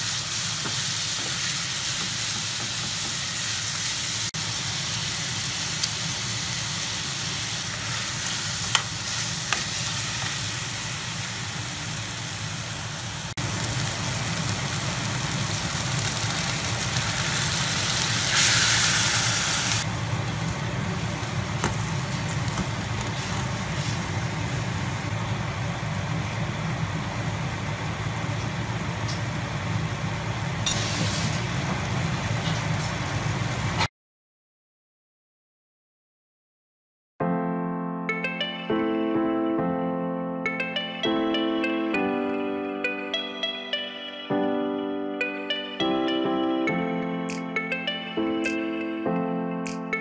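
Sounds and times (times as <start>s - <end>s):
meat sizzling in a pot: 0.0s - 25.2s.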